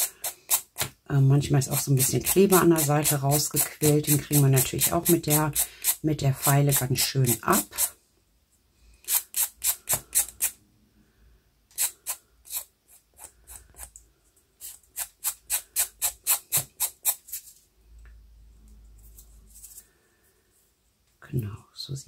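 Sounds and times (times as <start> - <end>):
nail file rasping on glass: 0.0 - 0.9, 11.7 - 13.9.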